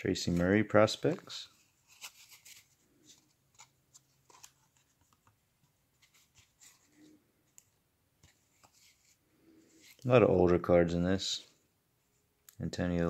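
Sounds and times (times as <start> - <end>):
cardboard cards ticking and rustling: 0.2 - 9.0.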